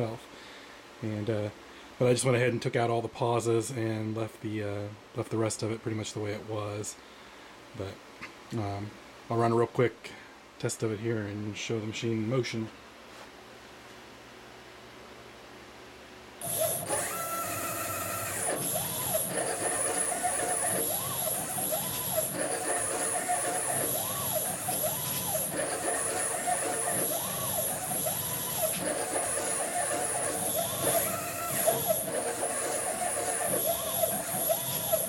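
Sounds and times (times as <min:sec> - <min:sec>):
steady high whine: 0:16.4 - 0:35.0
stepper motors whining: 0:16.4 - 0:35.0.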